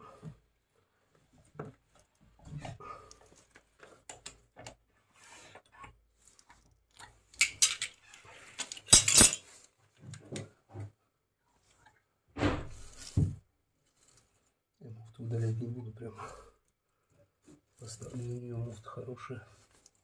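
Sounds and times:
metal tools clinking on pipe fitting: 7.4 - 8.0, 8.6 - 9.6
metal clatter: 8.6 - 9.5.

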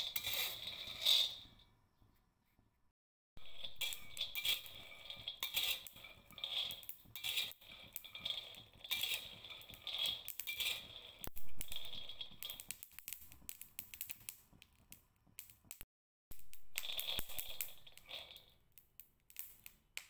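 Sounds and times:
nuts rattling in a wok: 0.0 - 1.4, 3.4 - 13.1, 16.7 - 18.6.

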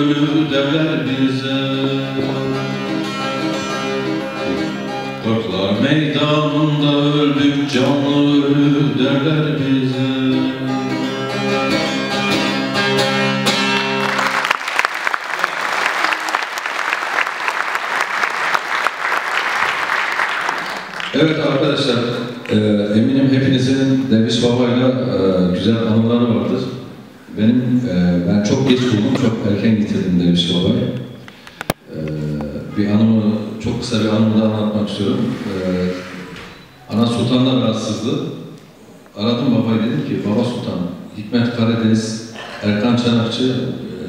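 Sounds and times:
man singing: 0.0 - 2.6, 4.4 - 10.8
audience applause: 13.6 - 21.4.

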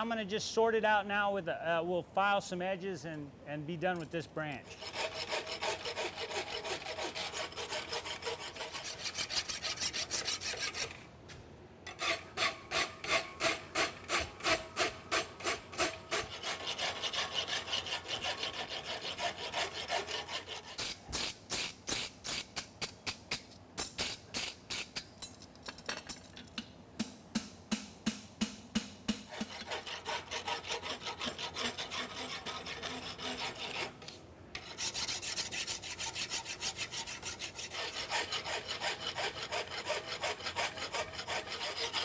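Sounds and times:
file rasping on steel: 4.6 - 11.0, 11.9 - 22.7, 29.1 - 42.0.

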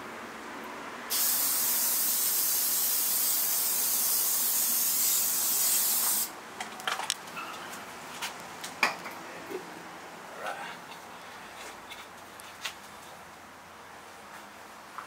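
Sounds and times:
aerosol can spraying: 1.1 - 6.3.

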